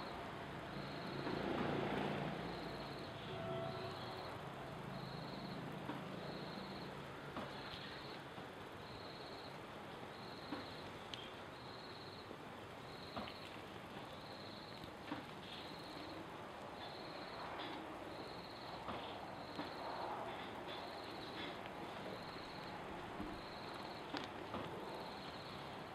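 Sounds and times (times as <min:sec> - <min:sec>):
insect chirping: 0:00.0 - 0:01.3, 0:02.4 - 0:06.9, 0:08.8 - 0:10.8, 0:11.5 - 0:14.8, 0:15.5 - 0:16.2, 0:16.8 - 0:24.2, 0:24.8 - 0:25.8
steady background hiss: 0:00.0 - 0:25.9.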